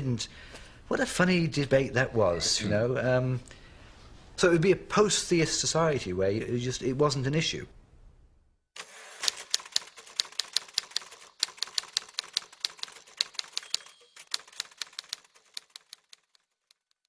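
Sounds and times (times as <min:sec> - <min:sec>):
typewriter keys clacking: 0:09.2 - 0:17.0
typewriter bell ringing: 0:09.3 - 0:16.1.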